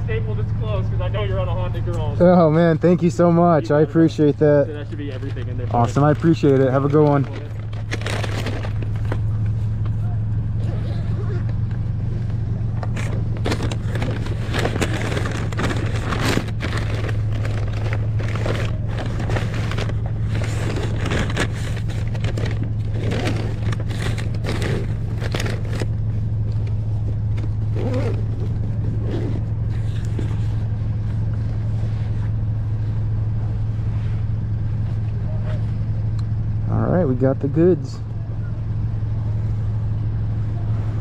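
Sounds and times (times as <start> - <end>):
engine idling: 0.0 - 41.0
crackling and scraping handling noises: 1.7 - 36.4.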